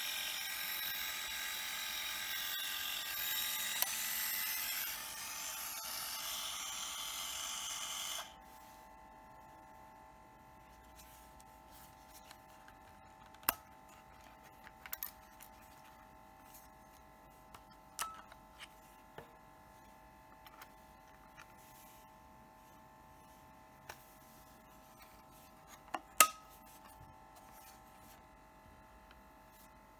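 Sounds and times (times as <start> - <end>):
camera motor whirring: 0.0 - 8.4.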